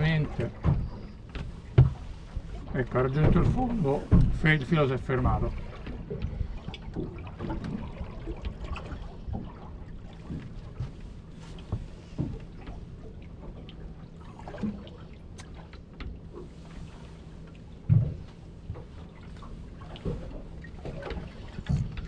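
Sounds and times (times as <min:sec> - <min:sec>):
steady low hum: 0:00.0 - 0:22.0
water lapping against boat hull: 0:00.0 - 0:22.0
light knocks and thump: 0:00.3 - 0:02.1, 0:03.1 - 0:04.6, 0:10.2 - 0:12.8, 0:17.8 - 0:18.9.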